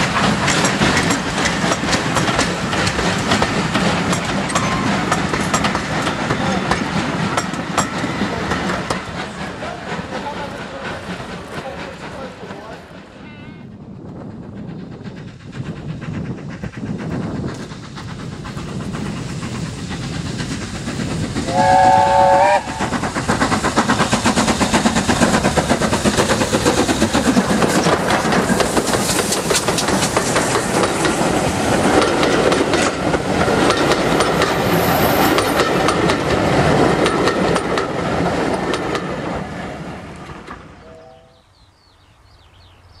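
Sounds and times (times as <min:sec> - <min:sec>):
train wheels clickety-clack: 0:00.0 - 0:40.8
steam whistle blast: 0:21.5 - 0:22.8.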